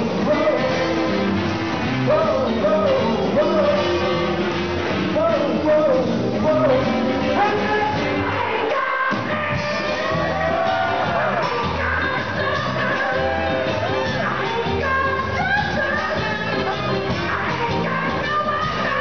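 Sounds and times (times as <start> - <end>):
person singing: 0.0 - 19.0
rock and roll band with horns: 0.0 - 19.0.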